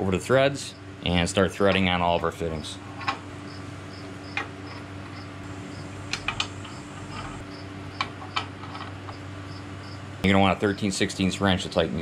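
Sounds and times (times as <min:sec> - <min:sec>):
steady low hum: 0:00.0 - 0:12.0
cricket chirping: 0:03.4 - 0:08.4, 0:09.1 - 0:10.1.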